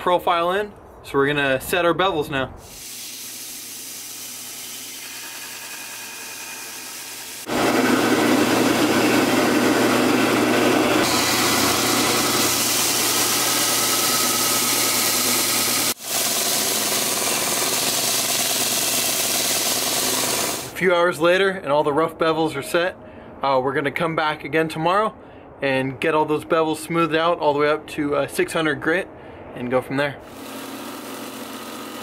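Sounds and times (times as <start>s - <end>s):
belt grinder running: 2.7s - 20.8s, 30.3s - 32.0s.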